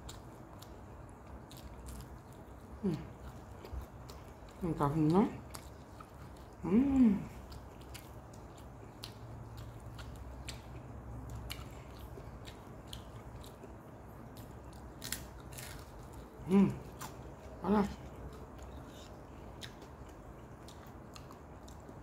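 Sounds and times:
person chewing crisp food: 0.0s - 22.0s.

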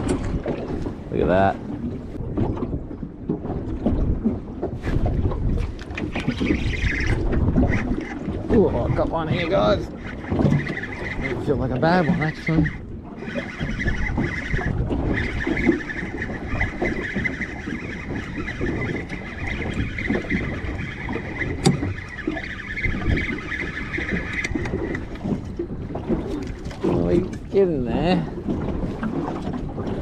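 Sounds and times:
water lapping: 0.0s - 30.0s
wind: 0.0s - 30.0s
fishing reel whirring: 5.8s - 25.6s.

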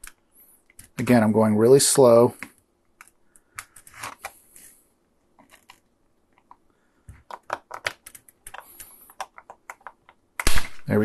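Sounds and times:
sharp plastic clicks and cracks: 5.4s - 10.9s.

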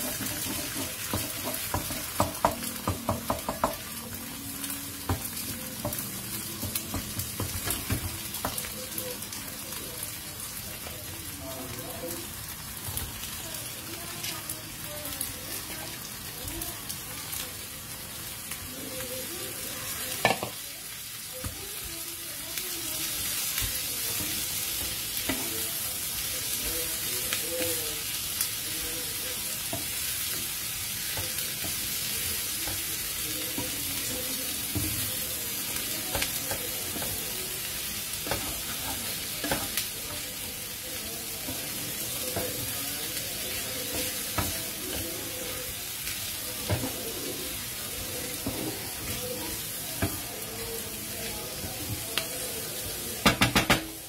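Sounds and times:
spatula scraping and tapping pan: 0.0s - 3.9s, 38.2s - 39.9s, 46.0s - 47.0s, 48.2s - 50.3s
food sizzling in a frying pan: 0.0s - 54.0s.

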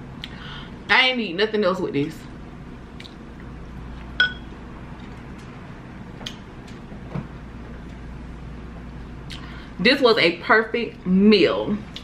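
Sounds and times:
quiet chewing with mouth clicks: 3.0s - 4.2s
fork clinking against glass bowl: 4.2s - 4.5s.

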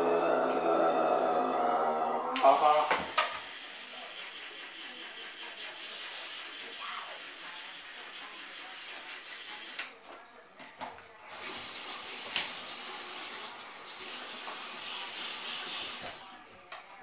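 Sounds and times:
toothbrush scrubbing teeth: 3.4s - 9.9s
tap water running into sink: 11.3s - 16.2s.

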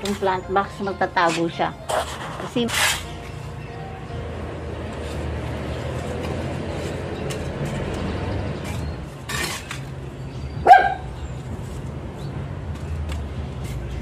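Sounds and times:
dog barking: 10.6s - 11.1s.

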